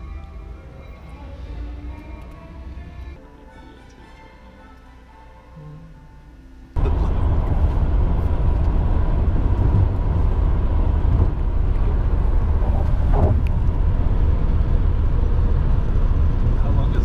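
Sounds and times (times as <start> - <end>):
vehicle rumble from inside: 6.8 - 17.0.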